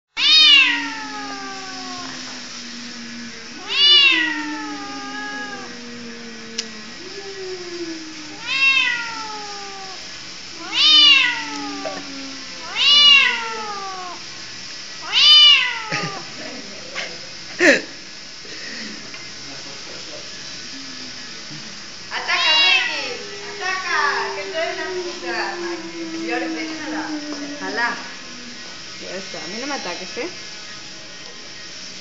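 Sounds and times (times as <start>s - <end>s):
cat meowing: 0.2s - 2.5s, 3.5s - 14.2s, 15.0s - 16.3s, 22.1s - 28.6s.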